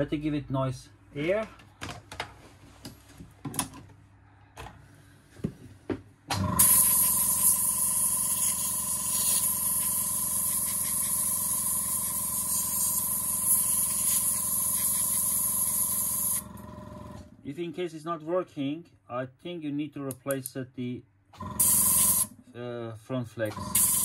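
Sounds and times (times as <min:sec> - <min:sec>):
air nozzle hissing: 0:06.6 - 0:16.4, 0:21.6 - 0:22.3, 0:23.7 - 0:24.0.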